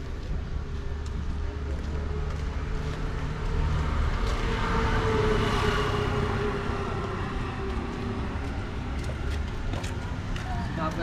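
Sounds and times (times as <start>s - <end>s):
vehicle driving past: 1.7s - 10.4s.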